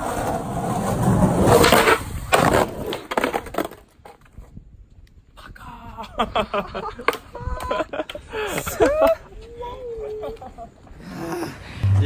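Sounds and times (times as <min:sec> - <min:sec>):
skateboard wheels rolling on asphalt: 0:00.0 - 0:05.4.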